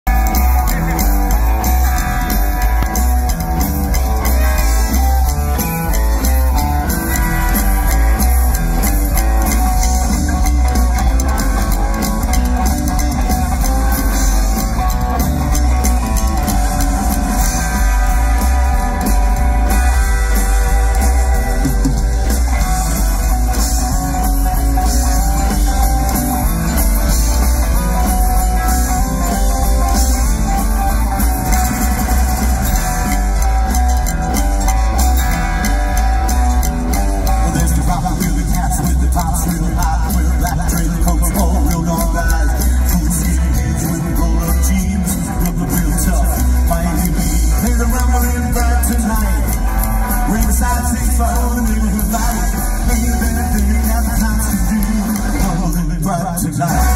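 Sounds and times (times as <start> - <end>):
rockabilly band playing: 0.0 - 56.9.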